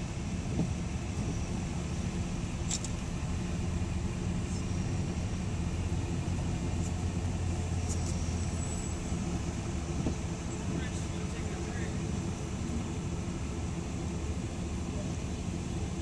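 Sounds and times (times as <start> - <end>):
car engine and road rumble: 0.0 - 16.0.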